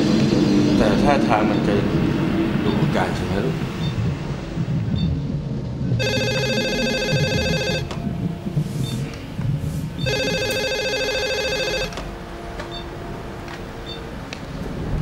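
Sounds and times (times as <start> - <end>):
telephone warbling ring: 6.0 - 8.0, 10.0 - 12.0.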